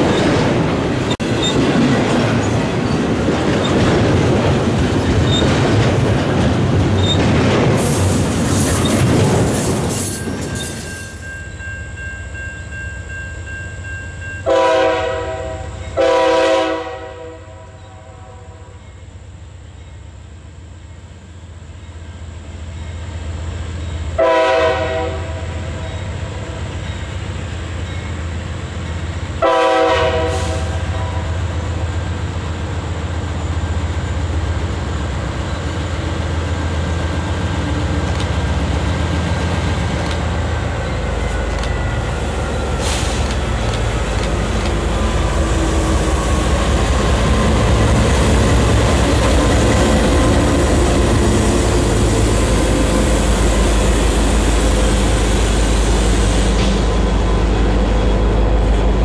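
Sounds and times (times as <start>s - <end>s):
train air horn blasts: 14.5s - 18.8s, 24.2s - 25.8s, 29.4s - 31.5s
locomotive engine rumble: 31.4s - 59.0s.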